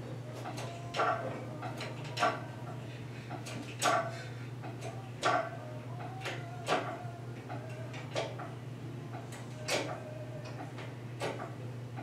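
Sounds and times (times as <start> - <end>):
hydraulic hoist pump clicks and creaks: 3.3 - 8.5, 9.1 - 12.0.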